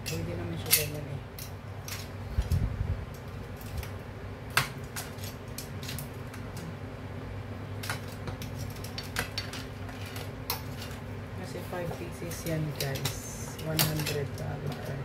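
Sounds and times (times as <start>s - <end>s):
steady low hum: 0.0s - 15.0s
metal tongs clinking on plate: 12.3s - 15.0s.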